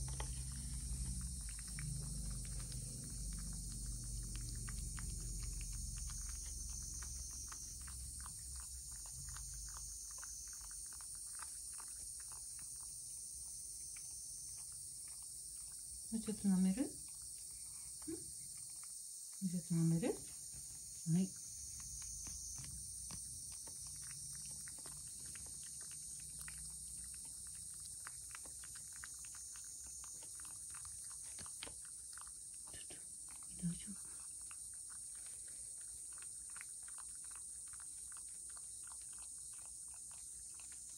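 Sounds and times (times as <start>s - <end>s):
cat lapping from a bowl: 0.0s - 12.5s, 23.0s - 40.9s
cat licking wet tongue clicks: 23.1s - 31.8s.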